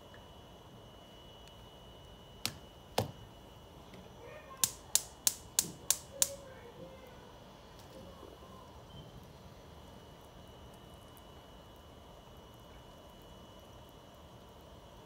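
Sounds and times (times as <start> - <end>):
sharp clicks: 4.6 - 6.4.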